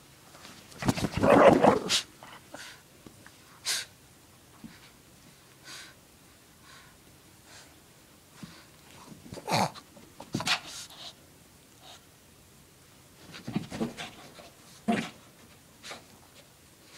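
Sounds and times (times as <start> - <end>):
dog growling: 1.1 - 2.4.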